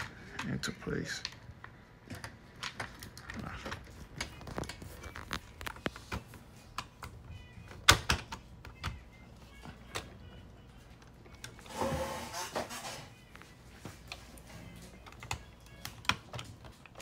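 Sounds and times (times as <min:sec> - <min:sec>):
plastic parts clicking: 0:00.0 - 0:09.0, 0:14.9 - 0:17.0.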